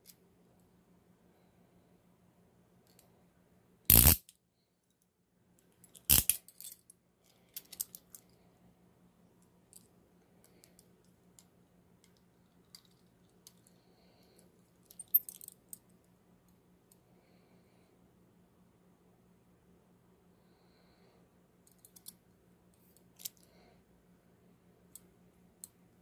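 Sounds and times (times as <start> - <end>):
handcuff ratchet clicking: 3.9 - 4.3, 6.1 - 6.5
soft metal clicks and clinks: 3.9 - 8.4, 9.4 - 17.0, 21.6 - 23.7.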